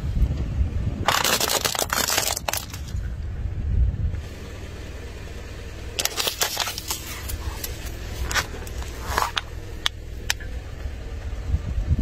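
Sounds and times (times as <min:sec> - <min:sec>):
low car rumble: 0:00.0 - 0:12.0
plastic bottle crackling and popping: 0:01.1 - 0:03.0, 0:06.0 - 0:10.4.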